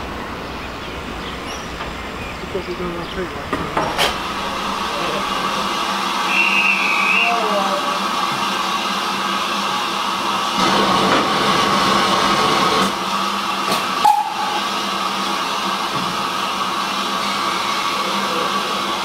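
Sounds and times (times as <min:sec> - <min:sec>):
steam hissing: 0:03.8 - 0:19.0.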